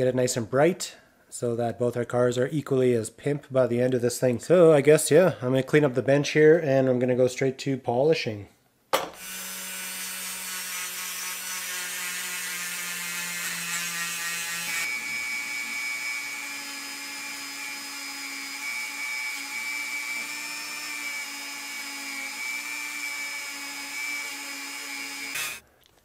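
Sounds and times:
rotary tool whining: 9.2 - 25.6
second rotary tool humming: 9.2 - 25.6.

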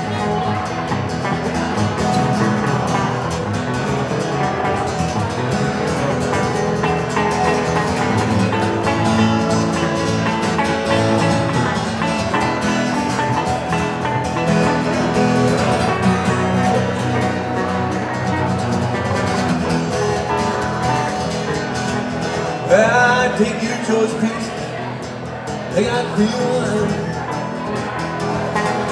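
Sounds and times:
two guitars playing: 0.0 - 28.9
man's voice: 22.4 - 27.6.

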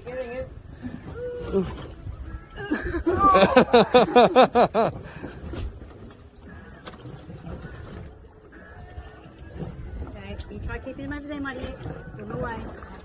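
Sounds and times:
low rumble of wind and boat: 0.0 - 13.0
person crying out: 2.6 - 3.7.

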